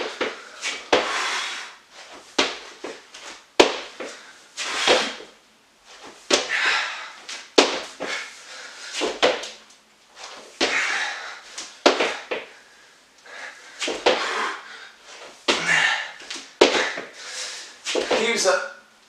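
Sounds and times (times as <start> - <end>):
breathy exhales: 10.6 - 17.8.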